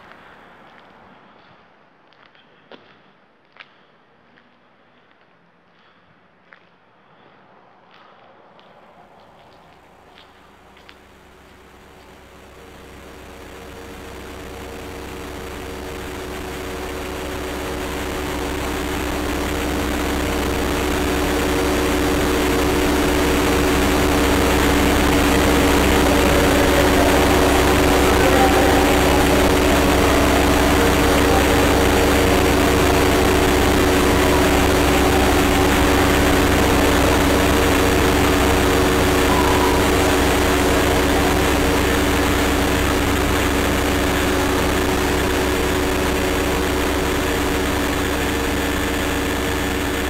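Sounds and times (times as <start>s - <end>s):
low held drone tones: 11.5s - 50.0s
low rumble: 13.5s - 46.9s.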